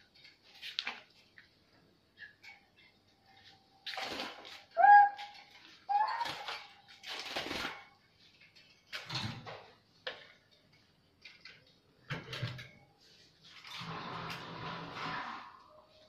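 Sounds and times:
bird cages scraping and rattling: 0:02.2 - 0:16.0.

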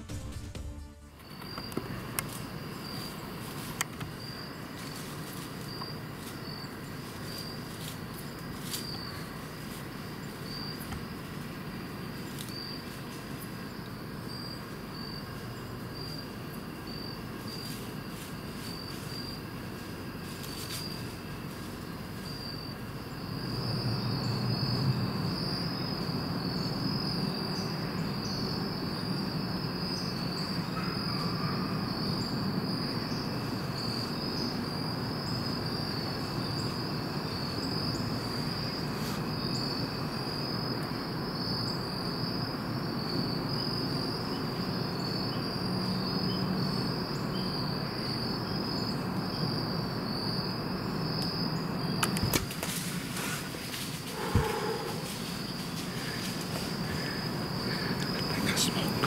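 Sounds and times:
insects trilling: 0:01.2 - 0:59.0.

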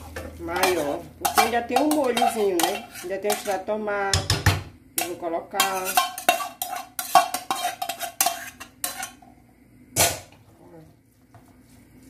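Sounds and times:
metal spoon scraping pans: 0:00.0 - 0:09.3.

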